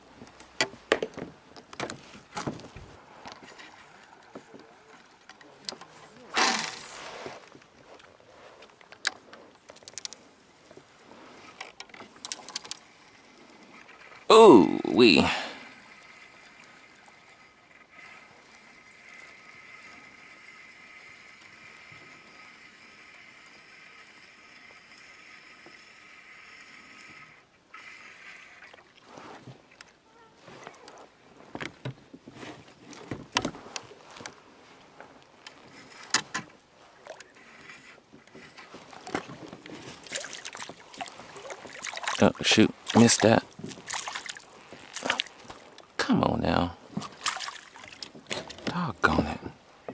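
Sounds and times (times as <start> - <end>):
fishing gear clicking: 5.0 - 10.2, 11.4 - 15.0, 35.1 - 46.0
fish splashing: 6.3 - 7.2, 39.8 - 45.8, 47.0 - 48.3.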